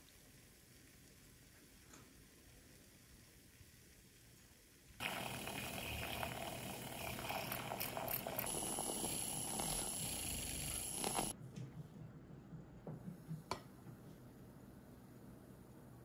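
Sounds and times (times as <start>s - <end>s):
electric milk frother whirring: 5.0s - 11.3s.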